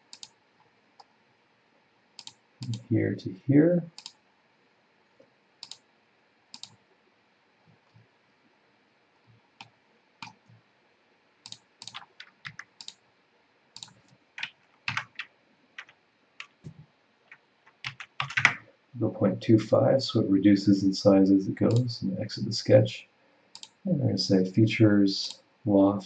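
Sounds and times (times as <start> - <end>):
computer mouse and keyboard clicks: 0.1 - 0.4, 2.2 - 2.8, 4.0 - 4.2, 5.6 - 5.8, 6.6 - 6.8, 9.6 - 10.6, 11.4 - 13.0, 13.8 - 18.6.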